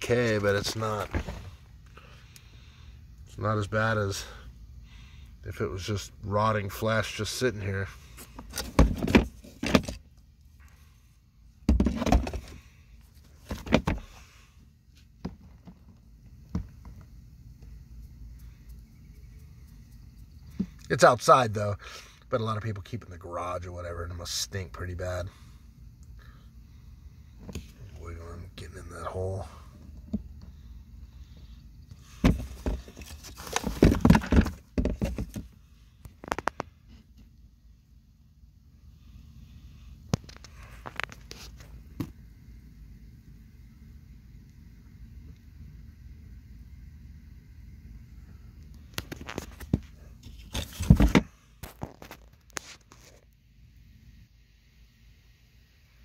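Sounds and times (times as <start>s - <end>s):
handling knocks and rubbing: 0.0s - 1.6s, 32.0s - 35.5s
rustling: 32.0s - 37.1s.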